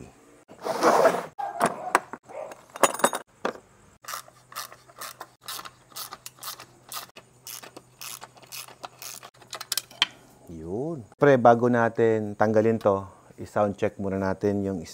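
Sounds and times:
hard parts clicking and clacking: 0:04.1 - 0:10.1.

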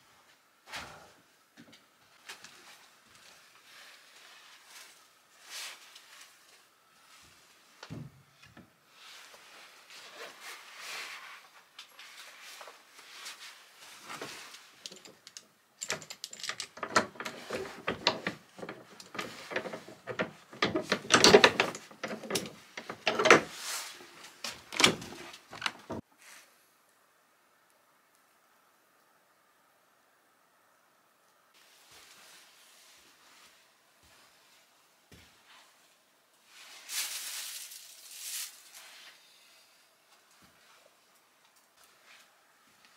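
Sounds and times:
quiet rustling: 0:02.0 - 0:26.5, 0:31.6 - 0:39.2, 0:40.1 - 0:42.9
padlock clicking and rattling: 0:14.9 - 0:23.4
wooden door opening: 0:24.5 - 0:26.0.

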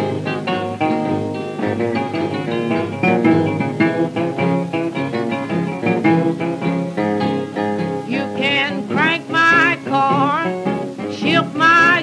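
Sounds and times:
acoustic blues guitar: 0:00.0 - 0:12.0
woman singing wordless line: 0:08.0 - 0:12.0.

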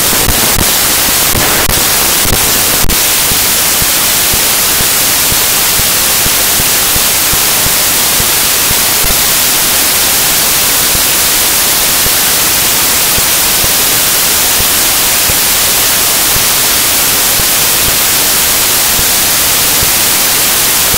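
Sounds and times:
loud static hiss: 0:00.0 - 0:20.9.

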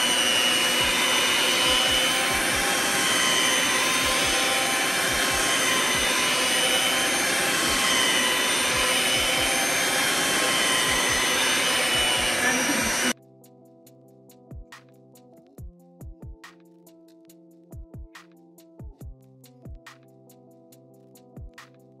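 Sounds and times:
stand mixer whisking batter: 0:00.0 - 0:13.2.

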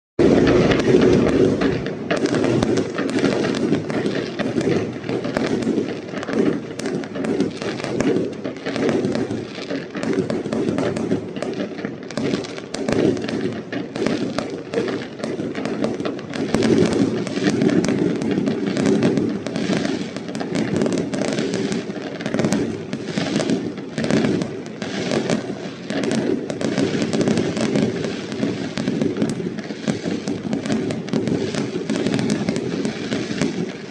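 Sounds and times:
fireworks bangs and crackles: 0:00.2 - 0:33.9.

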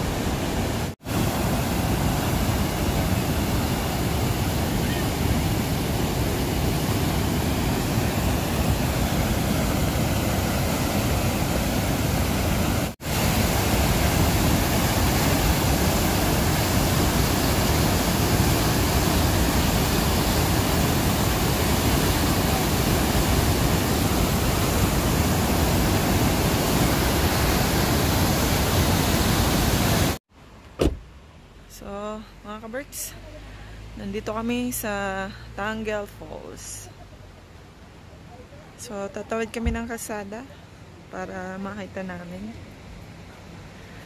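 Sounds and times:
river rapids rushing water: 0:00.0 - 0:30.2.

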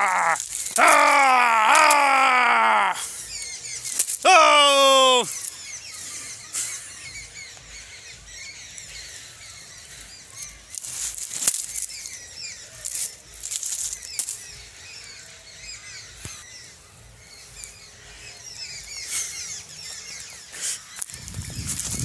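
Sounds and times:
rustling bursts: 0:00.0 - 0:02.2
small birds chirping: 0:00.0 - 0:22.0.

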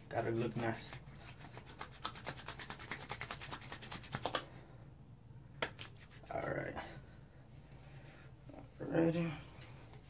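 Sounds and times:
palms rubbing together: 0:00.2 - 0:04.6, 0:05.6 - 0:06.4.

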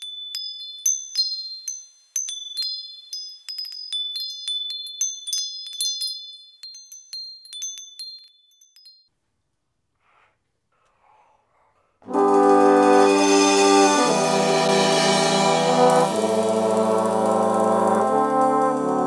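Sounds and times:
wind chimes tinkling: 0:00.0 - 0:09.1.

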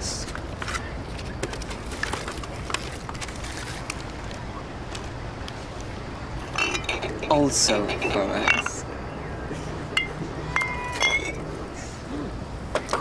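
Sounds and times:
city traffic rumble: 0:00.0 - 0:13.0
plastic food containers rustling: 0:00.2 - 0:04.4.

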